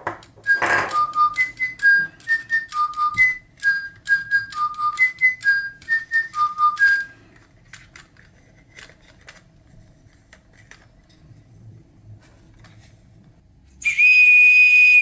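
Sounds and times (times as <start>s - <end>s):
electronic toy bird whistling: 0.5s - 7.1s, 13.8s - 15.0s.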